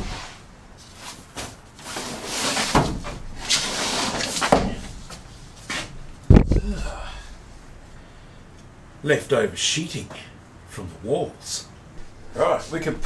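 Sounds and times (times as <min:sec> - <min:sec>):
sheet scraping and rustling: 0:00.0 - 0:06.6.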